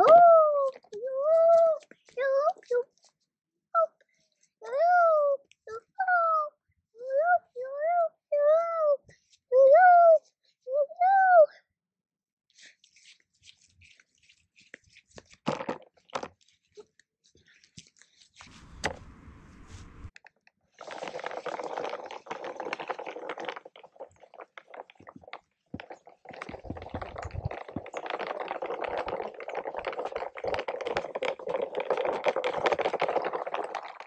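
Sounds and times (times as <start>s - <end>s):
plastic toy wagon rattling: 20.8s - 34.0s.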